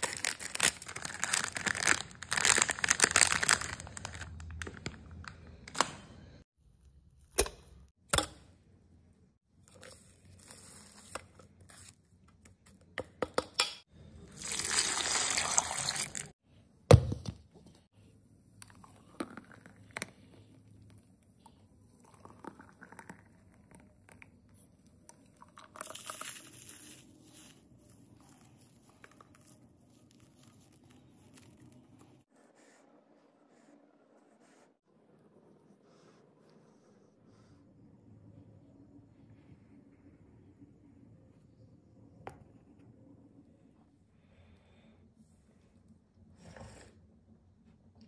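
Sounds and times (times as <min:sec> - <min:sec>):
crunchy toppings crumbled: 0:00.0 - 0:05.0
milkshake pouring into metal cups: 0:14.1 - 0:16.3, 0:21.7 - 0:32.0.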